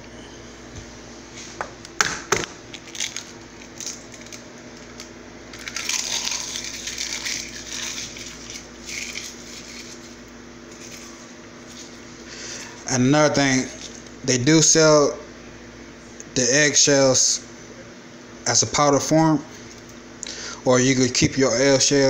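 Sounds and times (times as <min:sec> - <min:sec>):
eggshell crushed crackling: 0:02.6 - 0:12.1.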